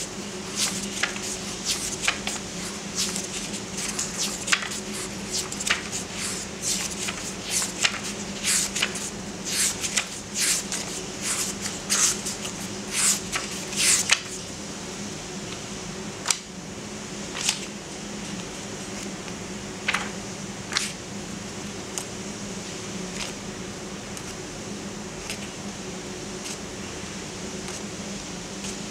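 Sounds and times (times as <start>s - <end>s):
book pages turning: 0.2s - 14.4s, 17.3s - 17.7s, 19.9s - 21.0s.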